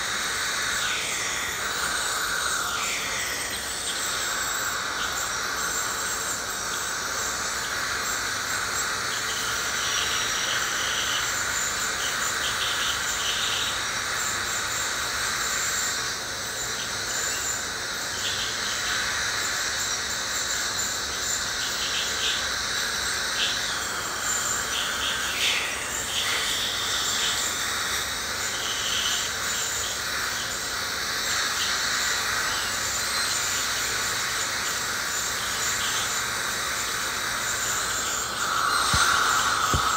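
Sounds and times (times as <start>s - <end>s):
dental scaler whine and hiss: 0.0s - 39.9s
scaler tip chattering: 35.1s - 39.9s.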